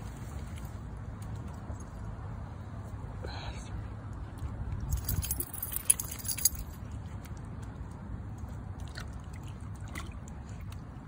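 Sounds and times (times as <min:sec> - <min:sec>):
dog collar tags jingling: 0:04.9 - 0:06.8.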